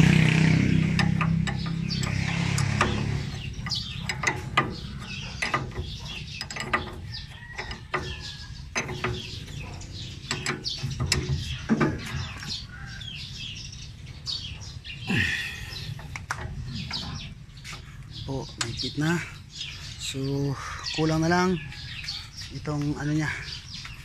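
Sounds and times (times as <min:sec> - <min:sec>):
spanners clinking on nut and bolt: 0:00.9 - 0:12.6.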